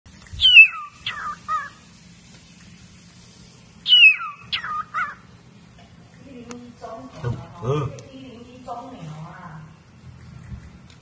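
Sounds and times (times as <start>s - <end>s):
parrot screeching: 0.4s - 1.8s, 3.9s - 5.3s.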